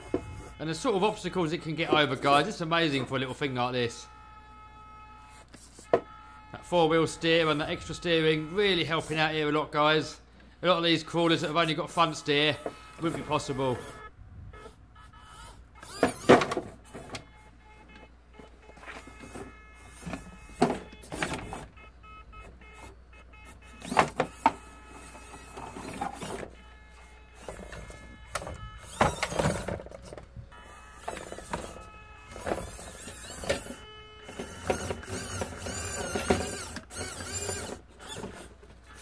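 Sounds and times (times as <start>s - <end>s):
small electric motor whirring: 0.0s - 0.6s, 3.2s - 9.3s, 11.4s - 39.0s
toy car bumping over obstacles: 15.8s - 21.8s, 23.5s - 26.7s, 27.3s - 39.0s.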